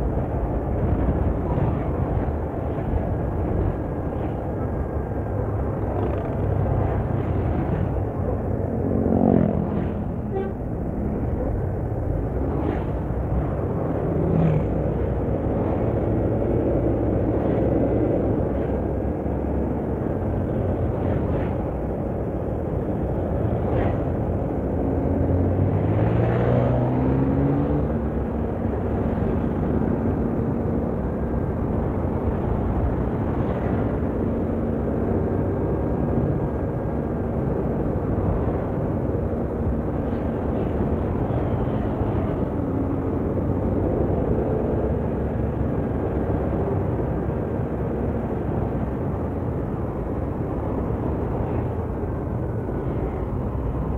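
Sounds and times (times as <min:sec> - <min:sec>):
road and wind rumble: 0:00.0 - 0:53.9
engine speeding up: 0:12.4 - 0:17.3, 0:24.8 - 0:28.2.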